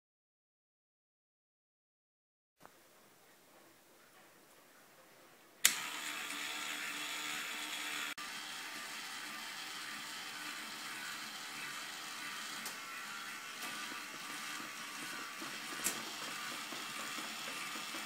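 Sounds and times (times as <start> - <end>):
toy motor whirring: 5.6 - 18.0.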